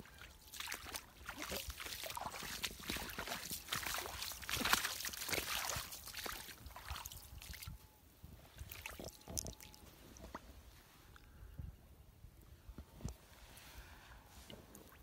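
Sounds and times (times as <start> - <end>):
feet wading in splashing water: 0.1 - 7.7
water trickling: 0.4 - 7.8.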